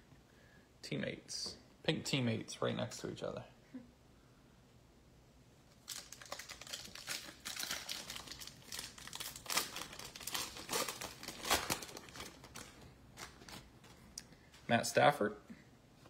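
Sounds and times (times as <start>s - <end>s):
wrapper tearing and crinkling: 5.7s - 13.7s.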